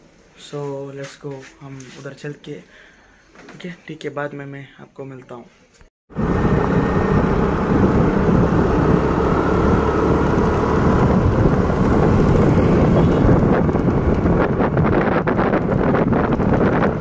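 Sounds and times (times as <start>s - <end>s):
vehicle running and road noise: 6.1s - 17.0s
wind buffeting microphone: 6.2s - 17.0s.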